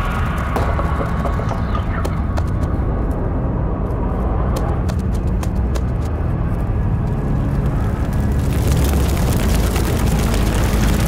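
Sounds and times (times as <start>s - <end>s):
deep steady rumble: 0.0s - 11.0s.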